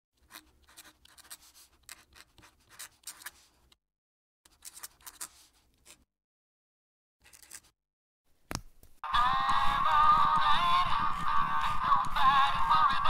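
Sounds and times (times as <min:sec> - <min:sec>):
pen nib scratching on paper: 0:00.2 - 0:03.7, 0:04.5 - 0:06.1.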